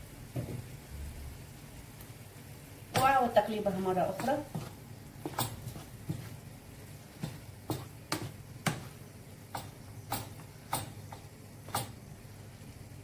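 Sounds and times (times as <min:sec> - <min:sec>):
wooden spoon knocking frying pan: 0:02.9 - 0:12.0.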